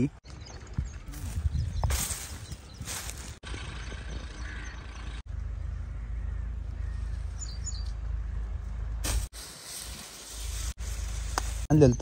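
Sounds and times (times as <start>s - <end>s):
high bird chirps: 0.2s - 5.2s, 6.0s - 8.0s
low steady rumble: 0.6s - 9.3s.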